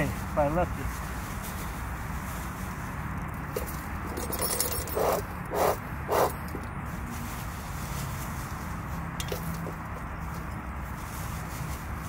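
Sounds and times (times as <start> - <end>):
rattling and rustling of handling: 0.0 - 12.0
bellows puffing air: 4.8 - 6.6.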